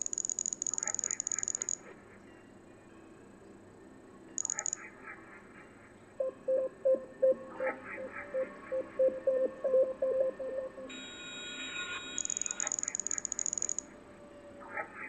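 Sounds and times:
electronic hum of several tones: 0:08.7 - 0:13.8.

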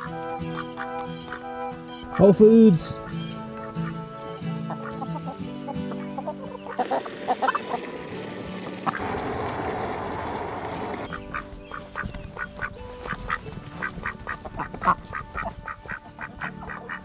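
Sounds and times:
ducks quacking: 0:00.0 - 0:17.0
steady noise: 0:08.0 - 0:11.1.

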